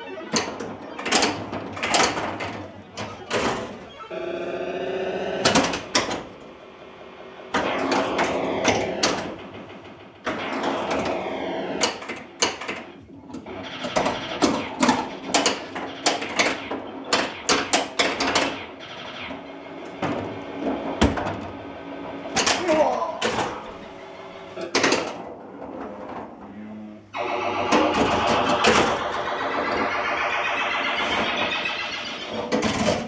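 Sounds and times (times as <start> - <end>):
pinball machine clacking: 0.0 - 33.0
electronic sound-effect tones: 27.2 - 33.0.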